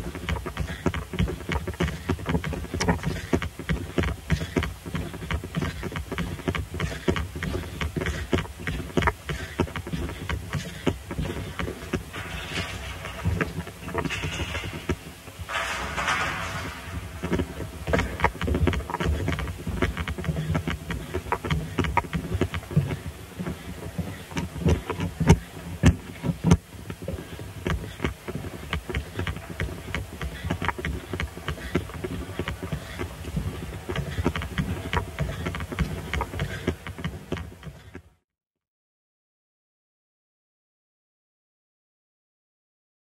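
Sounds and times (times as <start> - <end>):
steady low rumble: 11.1 - 24.3.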